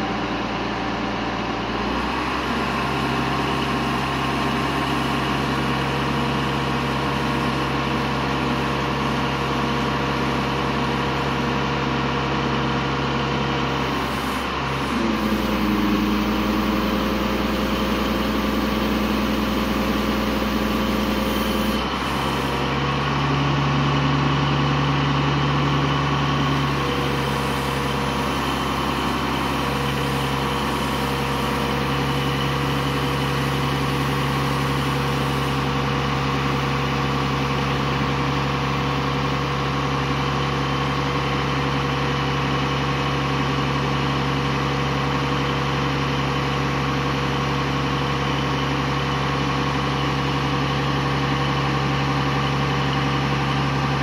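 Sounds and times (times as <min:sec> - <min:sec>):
truck engine running steadily: 0:00.0 - 0:54.0.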